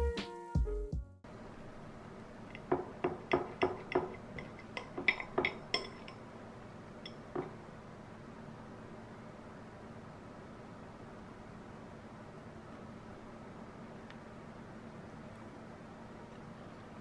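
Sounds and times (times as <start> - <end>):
knife and fork clinking on plate: 3.3 - 6.3.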